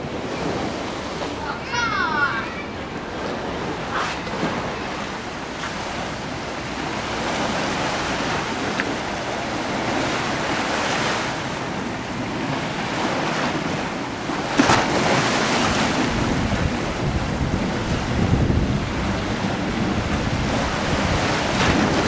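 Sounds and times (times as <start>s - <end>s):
waves washing onto shore: 0.0s - 22.0s
wind buffeting microphone: 2.7s - 22.0s.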